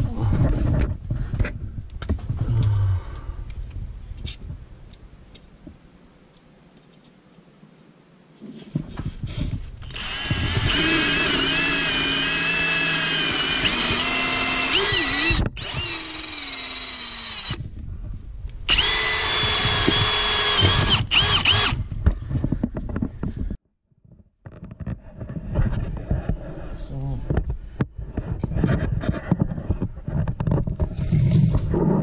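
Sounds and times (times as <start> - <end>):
cordless drill whining: 9.8 - 17.6, 18.7 - 21.9.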